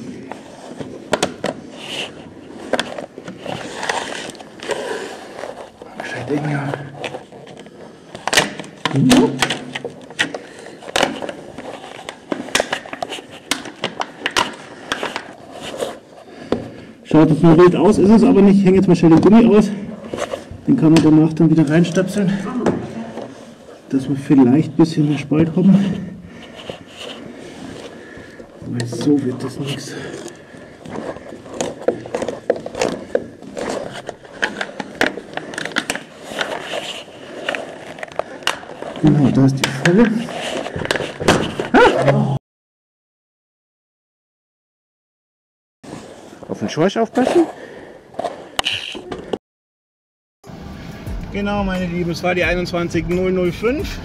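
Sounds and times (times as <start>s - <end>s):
plastic card clicking and scraping: 0.6s - 16.0s, 30.2s - 41.7s.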